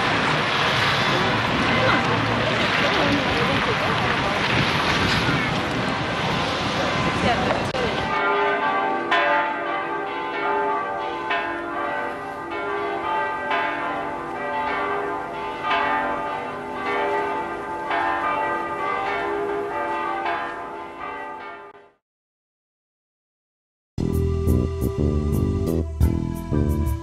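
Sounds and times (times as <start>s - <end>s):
church bells ringing: 0.0s - 3.8s, 5.2s - 22.0s.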